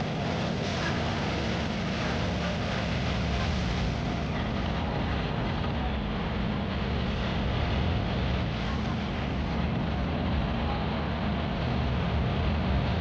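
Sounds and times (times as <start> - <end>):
vehicle road noise rumble: 0.0 - 13.0
wind on microphone: 0.0 - 13.0.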